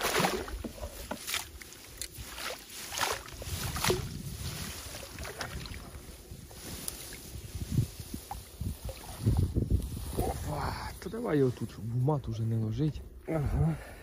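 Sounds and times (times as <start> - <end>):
water splashing and sloshing: 0.0 - 10.2
wind rumble on microphone: 3.1 - 14.0.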